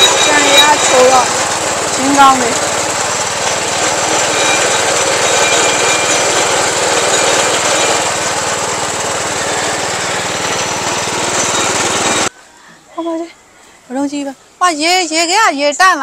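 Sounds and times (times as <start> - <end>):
small engine running: 0.0 - 12.3
sugarcane crushing in rollers: 0.0 - 12.3.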